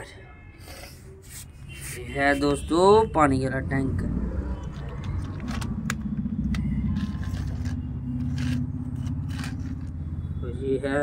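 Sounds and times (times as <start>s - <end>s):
toy truck wheels rolling on stone: 6.9s - 9.9s.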